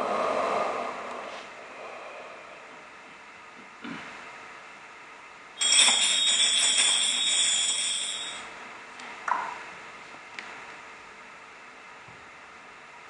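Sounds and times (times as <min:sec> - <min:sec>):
metal jingles ringing: 0:05.6 - 0:08.4.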